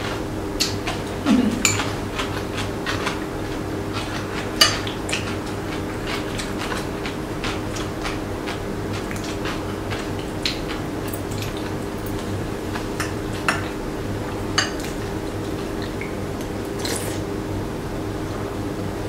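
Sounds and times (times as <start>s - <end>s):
cutlery clinking against bowls: 0.6s - 2.4s, 4.6s - 5.3s, 14.5s - 15.0s.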